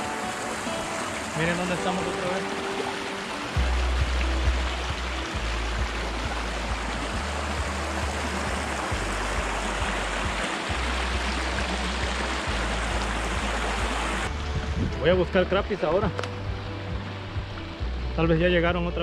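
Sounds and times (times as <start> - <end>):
water rushing over dam: 0.0 - 16.4.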